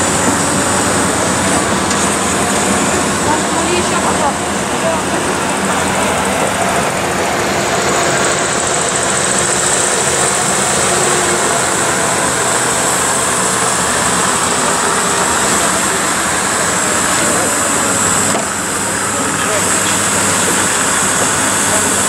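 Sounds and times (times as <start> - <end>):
ice resurfacer engine running: 0.0 - 22.0.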